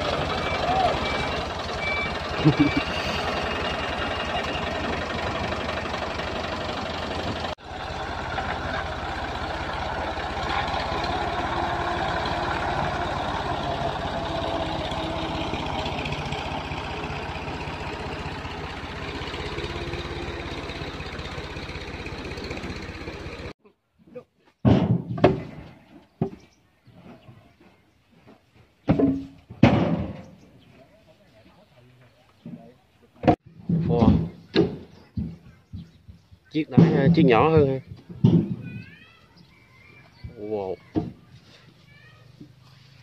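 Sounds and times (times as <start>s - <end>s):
tractor engine running: 0.0s - 23.6s.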